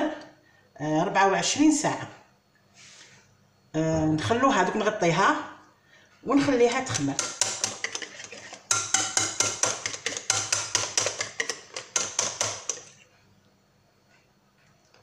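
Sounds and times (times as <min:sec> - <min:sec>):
whisk clinking against glass bowl: 0:06.5 - 0:13.0.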